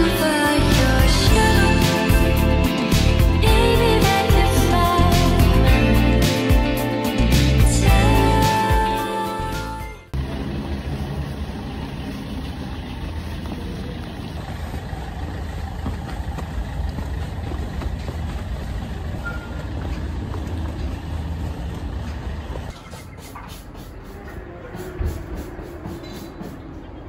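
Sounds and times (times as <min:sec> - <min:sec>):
low street rumble: 0:10.1 - 0:27.0.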